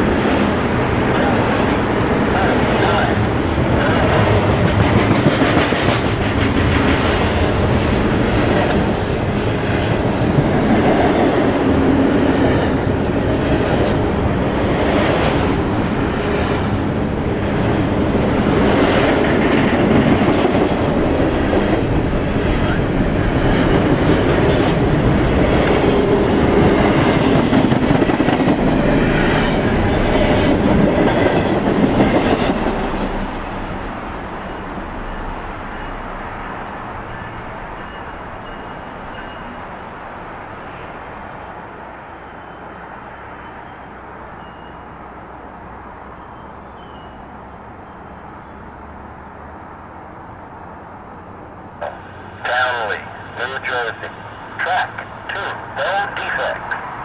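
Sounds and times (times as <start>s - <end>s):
freight train wheels clattering: 2.4s - 17.0s.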